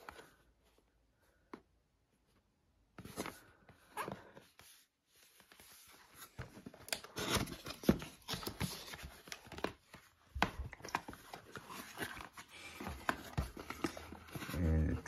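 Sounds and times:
cardboard scraping and rustling: 3.0 - 15.0.

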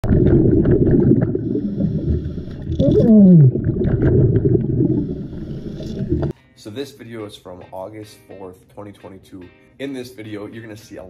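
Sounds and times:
diver's regulator bubbles: 0.0 - 6.3.

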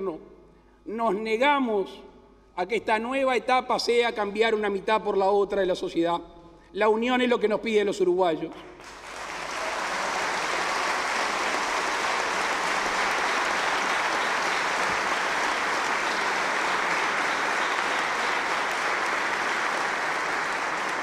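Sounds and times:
audience applause: 8.8 - 21.0.

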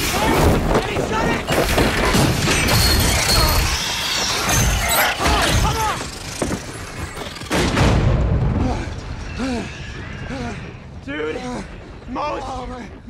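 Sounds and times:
shrill screeches: 2.5 - 7.5.

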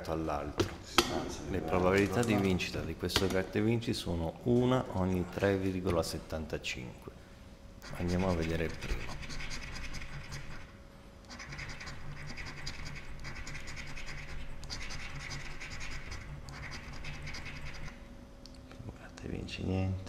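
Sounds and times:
scratch card being scratched: 7.8 - 10.7, 11.3 - 18.0.

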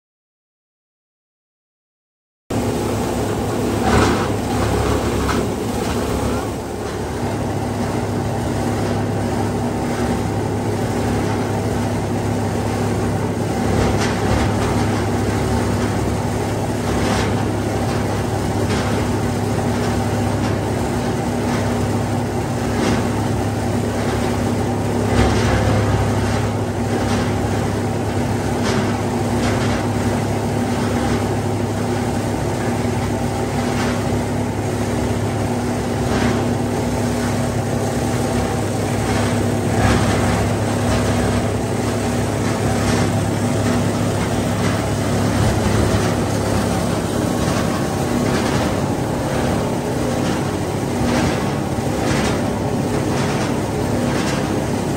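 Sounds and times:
plastic grinder humming: 37.7 - 54.9.

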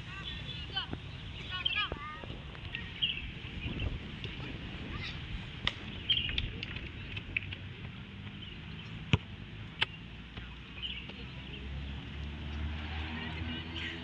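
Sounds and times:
low wind-like rumble: 0.0 - 14.0.

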